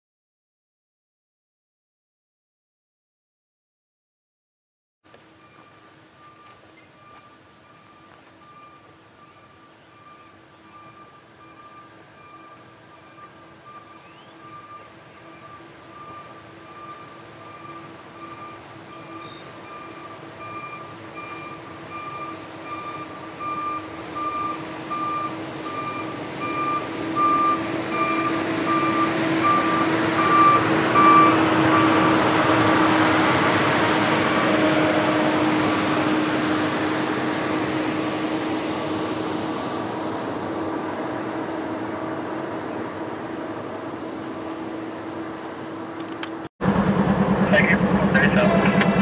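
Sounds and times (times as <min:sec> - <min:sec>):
truck engine and wheel hum: 0:05.1 - 0:49.0
backup alarm beeping: 0:05.3 - 0:32.2.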